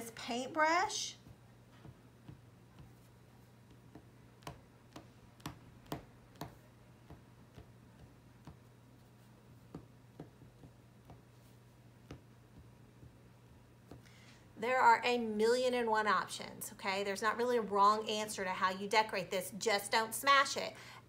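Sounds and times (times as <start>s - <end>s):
low steady hum: 0.0s - 21.0s
light taps on clay: 3.7s - 8.7s, 9.7s - 11.4s.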